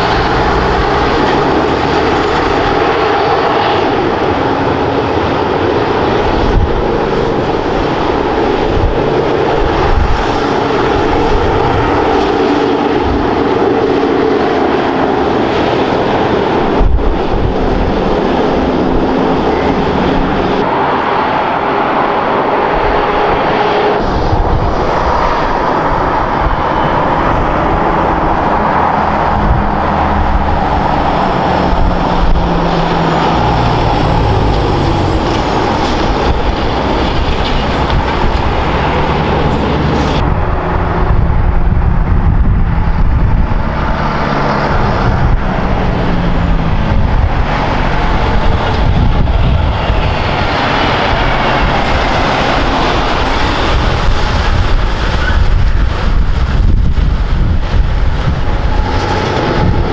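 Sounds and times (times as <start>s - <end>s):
heavy diesel trucks driving: 0.0s - 59.9s.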